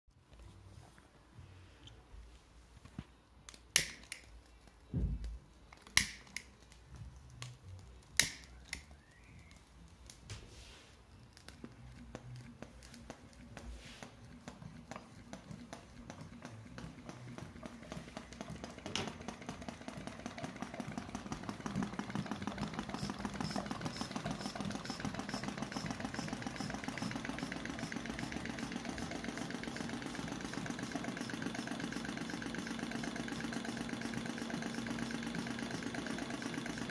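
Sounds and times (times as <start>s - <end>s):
small model engine clattering: 14.3s - 36.9s.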